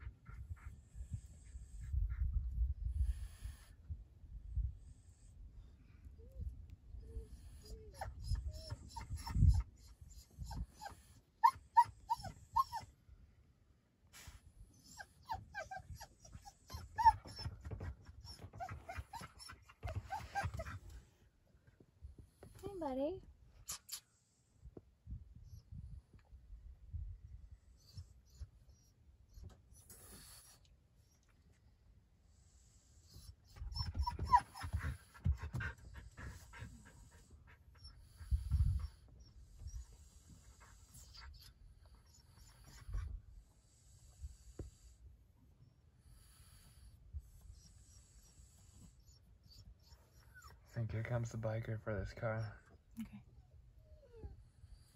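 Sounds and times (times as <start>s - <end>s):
faint low rumble: 0.0s - 10.7s
dog whimpering: 7.0s - 12.9s, 14.8s - 20.8s, 33.1s - 43.1s, 47.6s - 50.8s, 53.3s - 54.4s.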